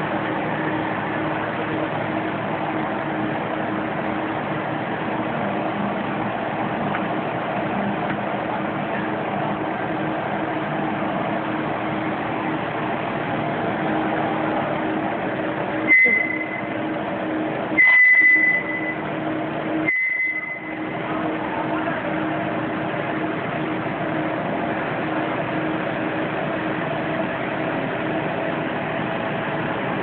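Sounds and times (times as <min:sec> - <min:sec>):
machine hum: 0:00.0 - 0:30.0
short high beeps: 0:15.9 - 0:16.7, 0:17.8 - 0:19.0, 0:19.9 - 0:20.8.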